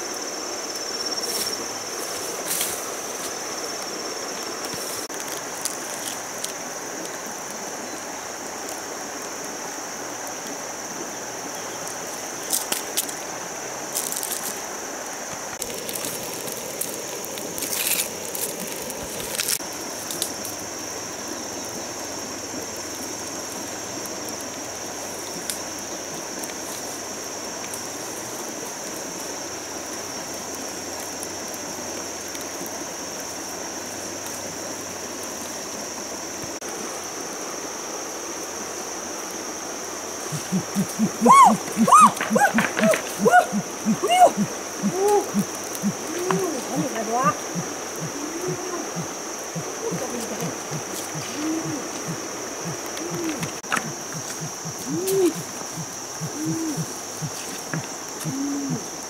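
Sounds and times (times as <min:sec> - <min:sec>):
insects droning: 0:00.0 - 0:59.0
river rushing: 0:29.4 - 0:58.2.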